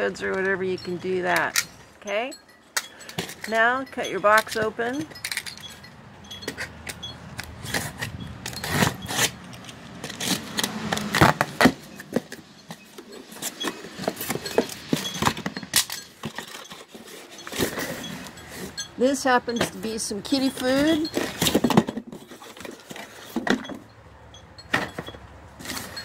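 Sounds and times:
knife slicing packing tape: 7.7 - 11.8.

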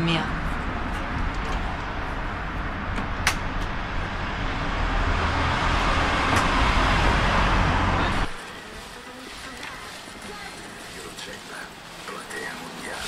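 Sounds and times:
vehicle passing close by: 0.0 - 9.0.

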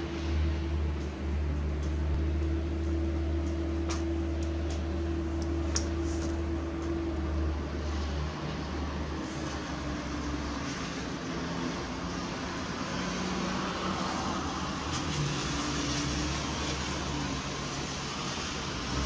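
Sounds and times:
low mechanical hum: 0.0 - 12.2.

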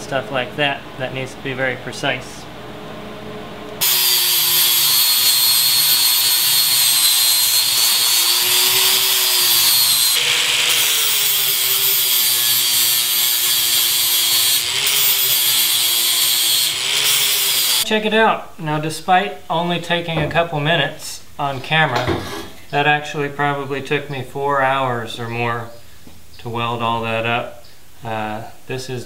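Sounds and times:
angle grinder grinding steel: 3.8 - 17.8.

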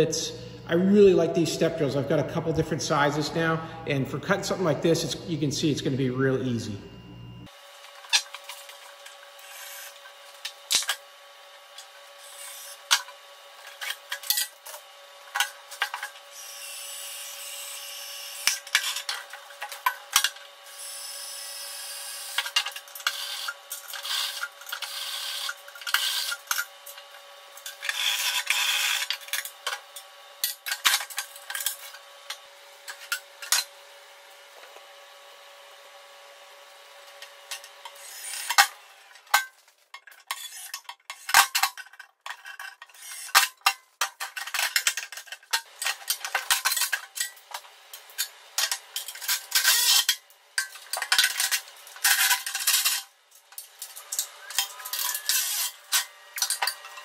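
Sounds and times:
drill whining and grinding steel: 9.4 - 10.2, 12.2 - 12.9, 16.3 - 19.1, 20.6 - 26.5, 27.7 - 29.2, 37.2 - 39.3, 49.2 - 50.2, 54.0 - 57.0.

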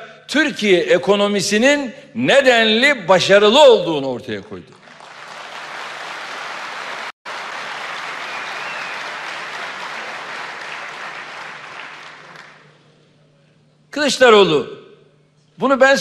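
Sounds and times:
audience applauding: 4.7 - 12.8.

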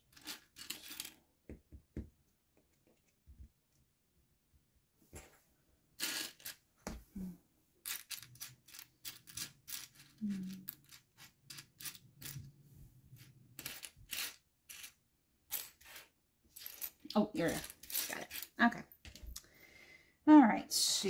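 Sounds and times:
plastic bricks clattering: 0.0 - 1.2, 6.0 - 6.6, 7.8 - 12.4, 13.2 - 18.5.

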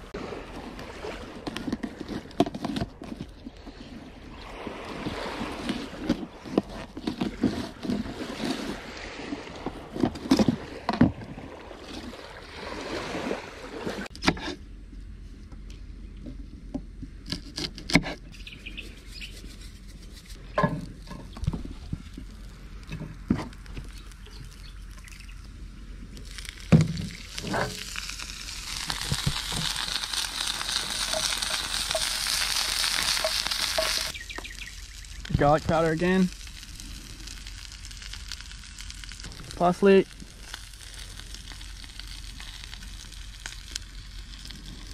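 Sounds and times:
vegetables sizzling in oil: 26.3 - 44.9.

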